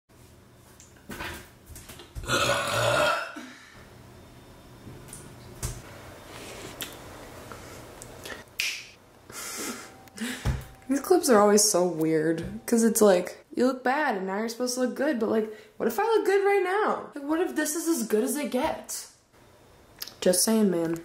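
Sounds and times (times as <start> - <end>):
person burping loudly: 2.2 - 3.5.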